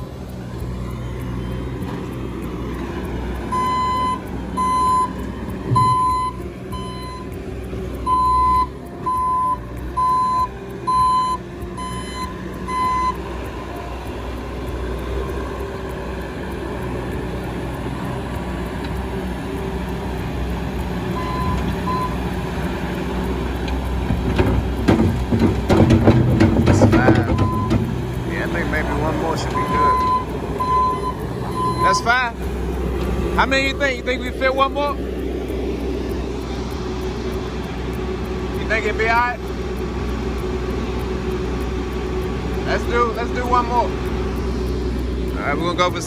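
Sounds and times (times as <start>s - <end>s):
reversing alarm beeping: 0.0s - 7.4s, 8.0s - 17.1s, 20.7s - 22.7s, 26.8s - 32.4s
diesel engine running: 0.0s - 46.0s.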